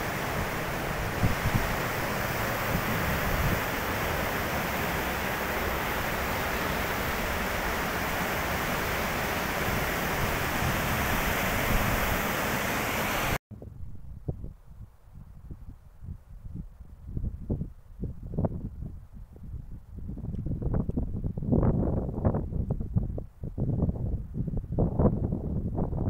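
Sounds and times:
rushing mountain river: 0:00.0 - 0:13.4.

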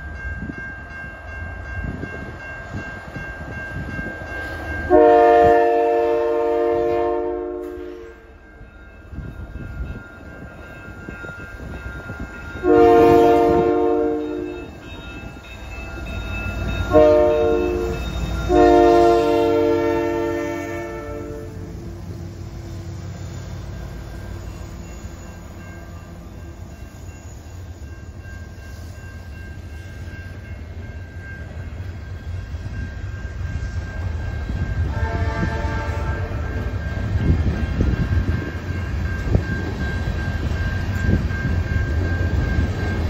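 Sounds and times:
freight train rumbling: 0:00.0 - 0:43.0
train horn chord: 0:04.9 - 0:08.4, 0:12.6 - 0:14.7, 0:16.9 - 0:21.9, 0:34.8 - 0:36.7.

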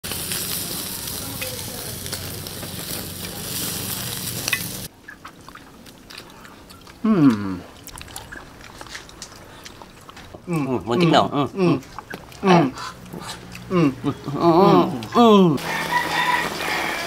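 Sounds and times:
meat sizzling on a grill: 0:00.0 - 0:04.9, 0:15.6 - 0:17.0.

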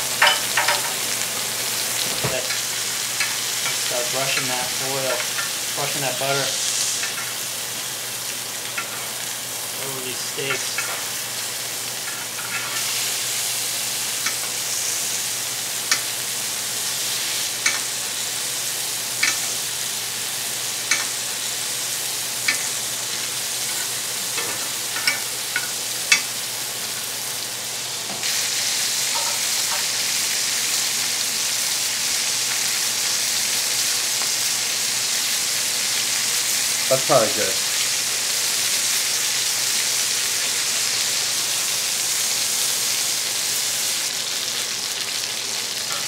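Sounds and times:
steaks sizzling in butter: 0:00.0 - 0:46.0.

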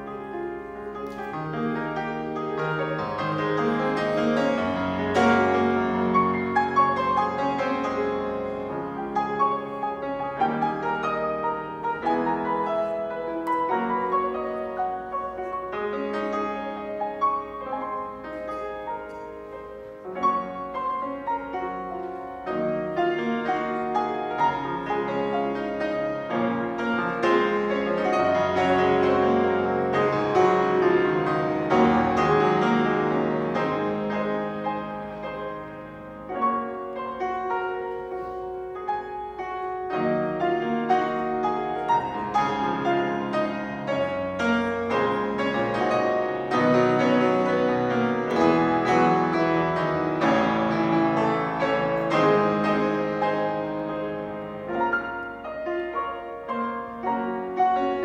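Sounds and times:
solo piano playing: 0:00.0 - 0:58.0.

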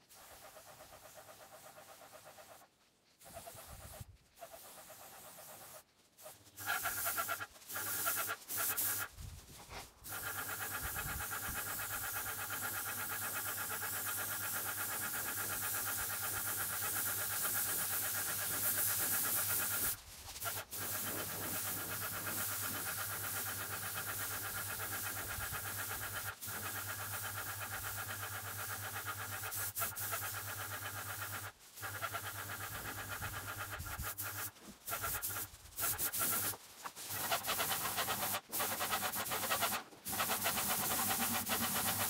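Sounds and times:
paint spray gun hissing: 0:00.0 - 0:42.0
sprayer hum: 0:10.0 - 0:42.0.

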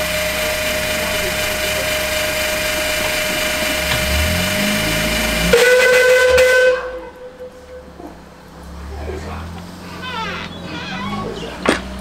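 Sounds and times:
steam hissing: 0:00.0 - 0:07.1
steam whistle blast: 0:04.1 - 0:08.0.

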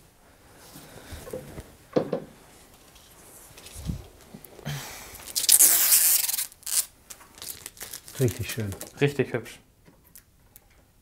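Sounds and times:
rustling of wrapping: 0:02.6 - 0:09.1.

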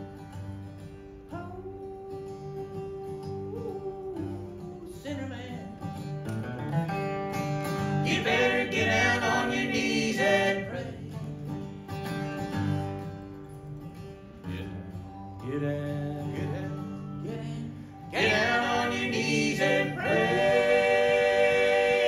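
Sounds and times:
acoustic guitar: 0:00.0 - 0:22.0
mandolin: 0:00.0 - 0:22.0
voices singing in harmony: 0:07.9 - 0:11.3, 0:16.2 - 0:22.0.

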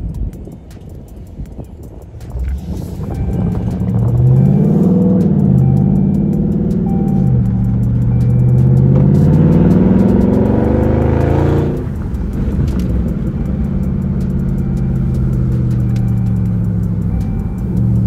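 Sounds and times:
car engine accelerating in cabin: 0:02.4 - 0:18.0.

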